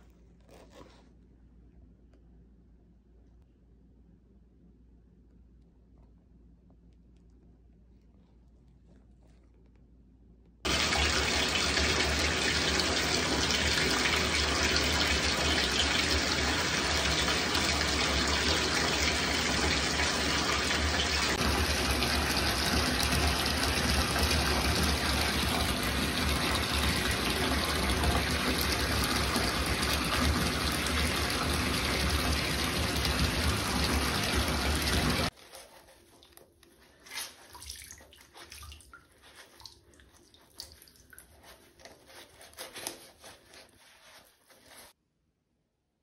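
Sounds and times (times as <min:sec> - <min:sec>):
faucet water pouring into tub: 0:10.7 - 0:36.4, 0:37.0 - 0:43.4.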